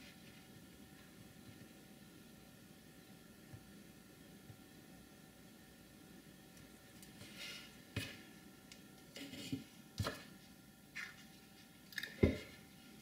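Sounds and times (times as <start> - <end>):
soft scrapes and rustles: 7.1 - 8.3.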